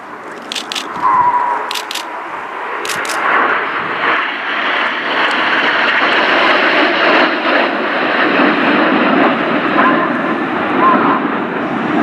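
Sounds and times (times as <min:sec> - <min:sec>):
jets flying past: 0:00.0 - 0:12.0
sharp clicks: 0:00.4 - 0:01.0, 0:01.7 - 0:02.1, 0:02.8 - 0:03.3.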